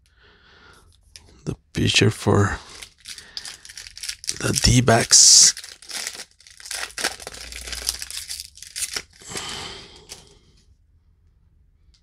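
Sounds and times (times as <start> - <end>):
cards rustling and flicking: 2.8 - 10.3.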